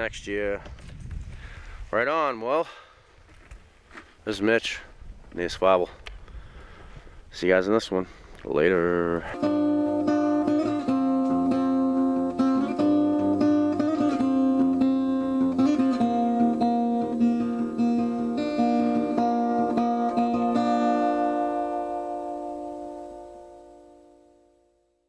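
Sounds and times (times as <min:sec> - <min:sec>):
acoustic guitar picking: 0:09.2 - 0:24.7.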